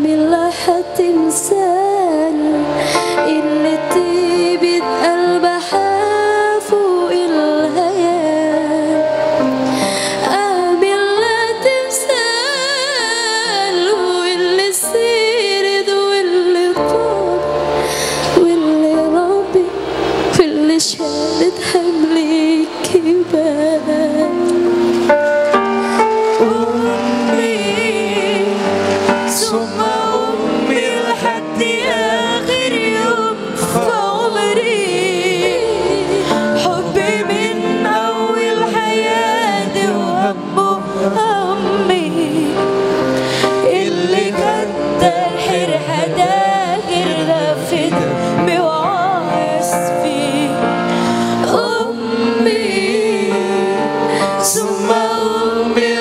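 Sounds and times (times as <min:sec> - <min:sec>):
woman singing ornamented melody: 0:00.0 - 0:09.3, 0:10.2 - 0:24.6, 0:26.3 - 0:42.8
sustained keyboard accompaniment: 0:00.0 - 0:56.0.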